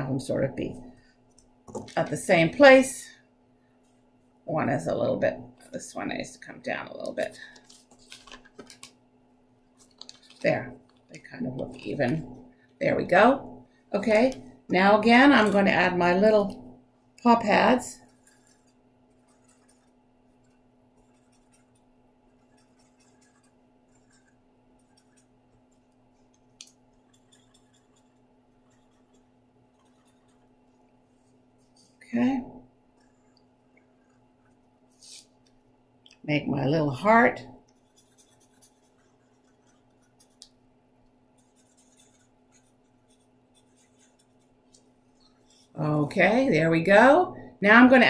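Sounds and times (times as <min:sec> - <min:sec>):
low room hum: 0:00.0 - 0:48.0
felt-tip marker scratching on paper: 0:18.0 - 0:31.9, 0:37.8 - 0:40.4, 0:41.4 - 0:44.6.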